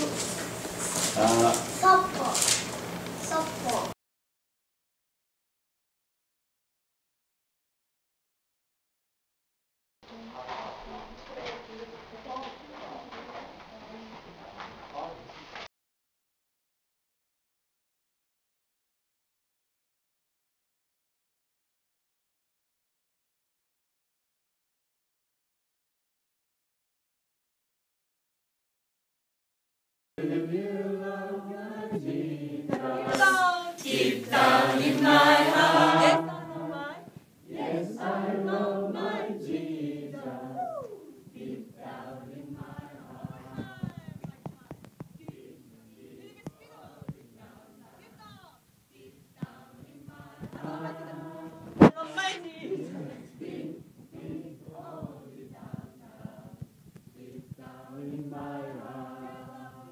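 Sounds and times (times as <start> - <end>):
group singing without instruments: 30.2 - 44.3, 45.0 - 59.9.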